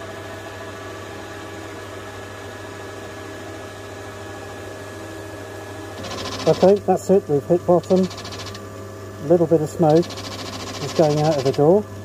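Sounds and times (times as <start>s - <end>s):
drill press motor humming: 5.0s - 12.0s.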